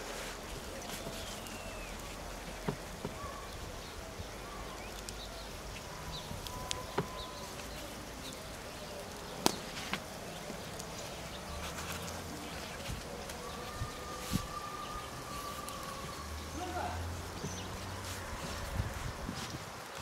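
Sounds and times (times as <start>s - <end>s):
faint bird chirps: 0.9s - 2.1s, 3.2s - 8.9s.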